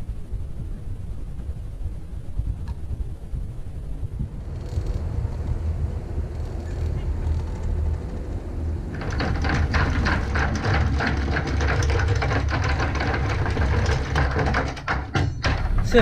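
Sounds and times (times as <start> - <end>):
low engine rumble: 0.0 - 16.0
anchor chain clattering: 6.4 - 16.0.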